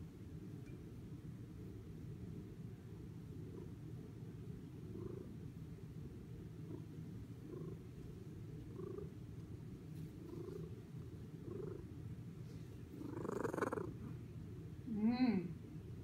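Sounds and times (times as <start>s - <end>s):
cat purring: 3.3s - 14.2s.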